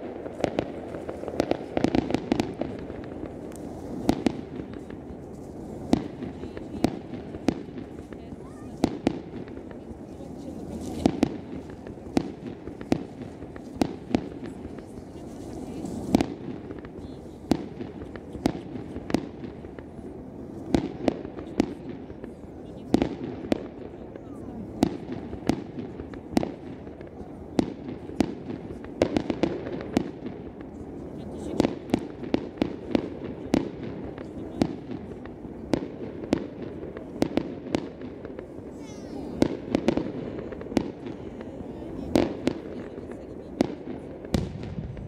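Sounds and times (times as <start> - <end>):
background fireworks going off: 0.0 - 45.0.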